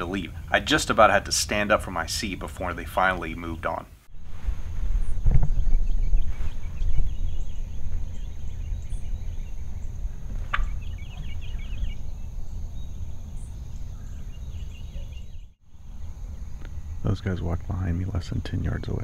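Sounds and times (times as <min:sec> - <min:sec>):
small birds chirping: 0:00.0 - 0:19.0
low rumble on microphone: 0:04.1 - 0:19.0
distant turkeys calling: 0:05.4 - 0:17.1.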